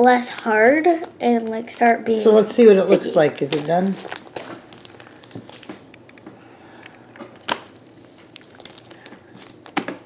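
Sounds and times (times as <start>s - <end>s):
slime crackling and clicking: 3.3s - 6.2s.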